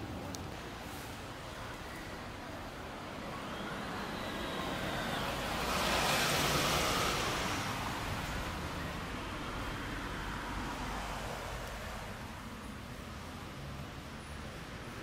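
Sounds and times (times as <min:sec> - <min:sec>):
background traffic noise: 0:00.0 - 0:15.0
vehicle passing by: 0:03.2 - 0:12.2.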